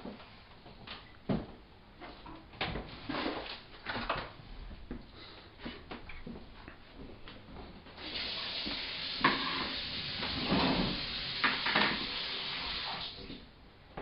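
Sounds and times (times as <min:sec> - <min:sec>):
egg sizzling in a pan: 0:08.0 - 0:13.0.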